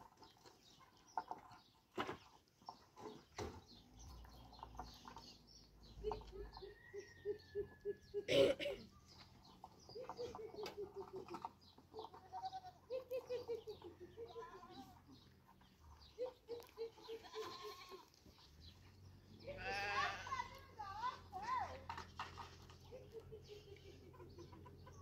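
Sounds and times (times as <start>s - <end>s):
livestock bleating: 17.1s - 18.1s, 19.4s - 20.6s.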